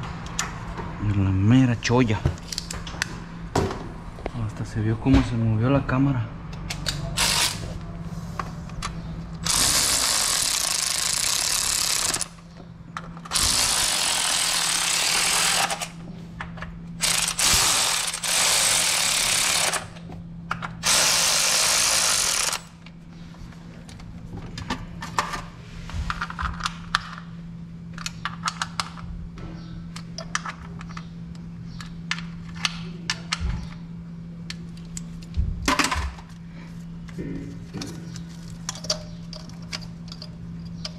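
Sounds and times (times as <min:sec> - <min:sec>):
steady low hum: 0:00.0 - 0:40.9
power ratchet running: 0:07.1 - 0:07.7, 0:09.4 - 0:12.4, 0:13.2 - 0:16.0, 0:17.0 - 0:20.0, 0:20.8 - 0:22.8
rapid ratchet clicks: 0:09.4 - 0:12.4, 0:13.3 - 0:15.9, 0:17.0 - 0:19.9, 0:20.8 - 0:22.7.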